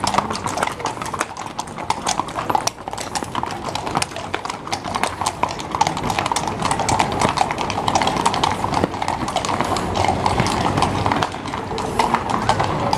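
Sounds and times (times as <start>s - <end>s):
horse hooves on cobblestones: 0.0s - 12.9s.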